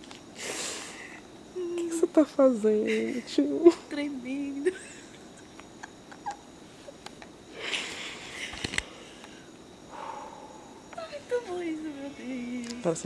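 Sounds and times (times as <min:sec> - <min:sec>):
woman breathing out: 0:07.5 - 0:10.9.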